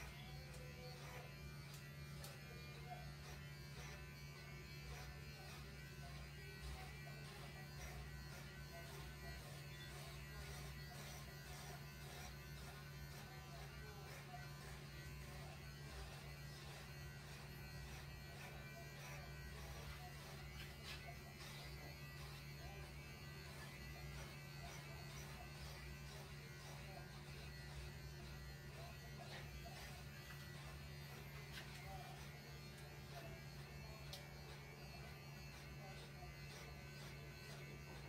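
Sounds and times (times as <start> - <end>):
electric hair clippers buzzing: 0.0 - 38.0.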